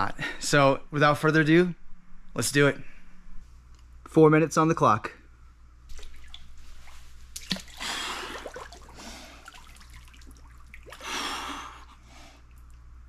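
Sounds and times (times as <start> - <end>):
water sloshing and dripping: 5.9 - 12.9.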